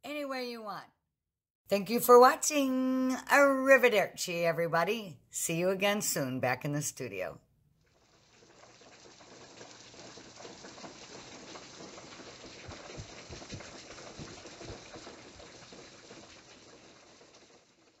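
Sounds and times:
rain patter: 7.8s - 18.0s
heavier raindrops: 7.9s - 18.0s.

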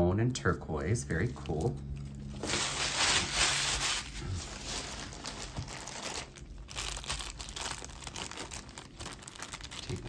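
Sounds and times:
paper and plastic bags rustling: 2.2s - 10.0s.

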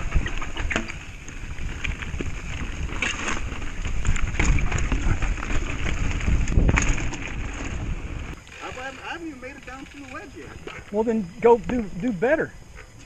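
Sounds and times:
wind rumbling on microphone: 0.0s - 8.4s
bike knocking and rattling: 0.0s - 11.0s
tyres crunching on rocks: 0.0s - 11.0s.

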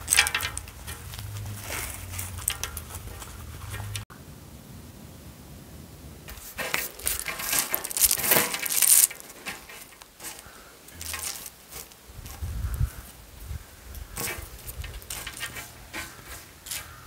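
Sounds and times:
seeds falling onto table: 6.3s - 12.8s.

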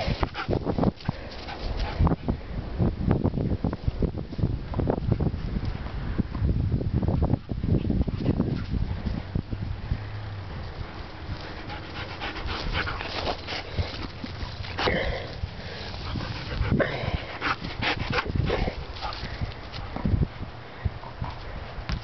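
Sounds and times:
dog panting: 11.2s - 19.6s.

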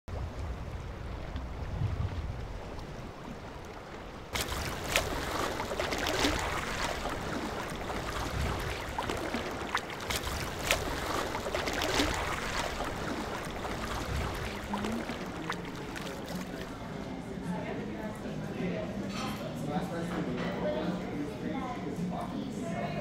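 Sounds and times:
wind noise: 0.1s - 3.6s, 4.3s - 15.2s
water lapping: 0.1s - 18.1s
small splashes and clicks: 1.2s - 16.9s.

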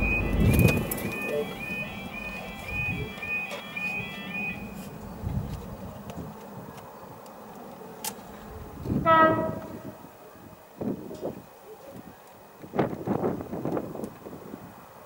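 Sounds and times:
level crossing alarm warbling: 0.0s - 4.8s
short loud horn: 9.0s - 10.0s.

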